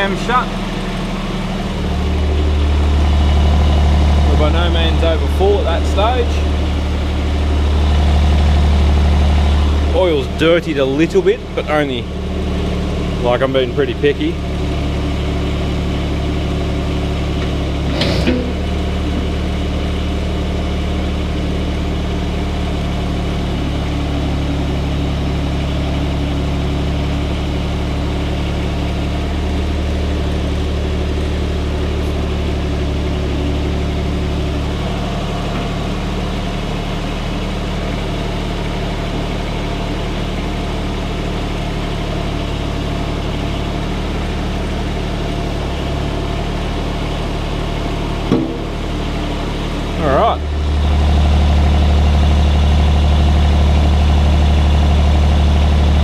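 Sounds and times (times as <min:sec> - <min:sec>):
diesel engine idling: 0:00.0 - 0:56.0
brief knock: 0:48.3 - 0:48.7.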